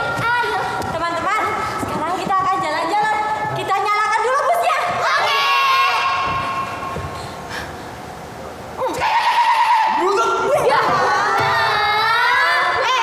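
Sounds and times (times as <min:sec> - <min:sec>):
group of actors shouting and cheering: 0:04.5 - 0:07.0, 0:08.9 - 0:13.0.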